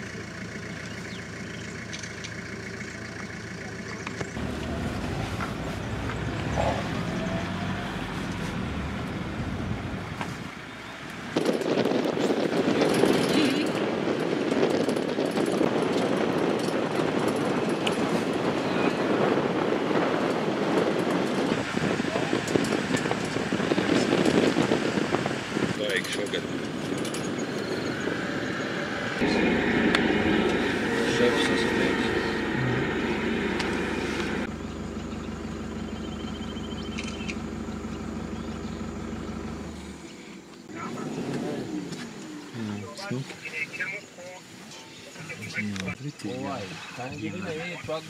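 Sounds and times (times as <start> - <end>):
vehicle engine and tyres rumbling: 0.0 - 48.0
wind on microphone: 11.2 - 34.5.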